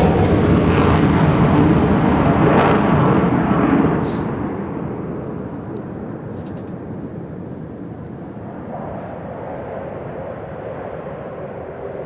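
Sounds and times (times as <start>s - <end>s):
fighter jet afterburner rumble: 0.0s - 12.0s.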